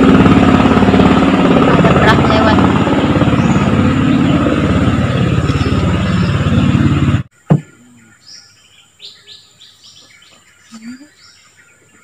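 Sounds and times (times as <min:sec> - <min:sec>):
small boat engine running: 0:00.0 - 0:07.3
loud knock: 0:07.5 - 0:07.7.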